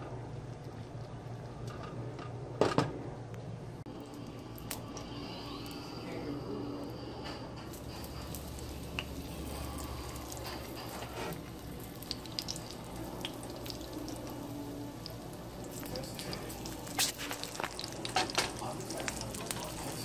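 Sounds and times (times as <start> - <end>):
fish frying in hot oil: 7.6 - 20.0.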